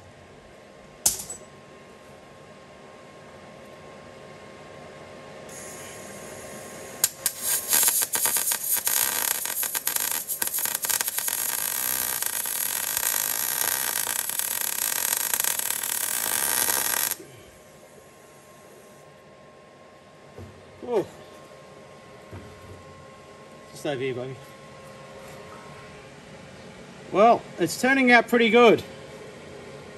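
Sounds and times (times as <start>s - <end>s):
welder arc crackling: 5.5s - 17.3s.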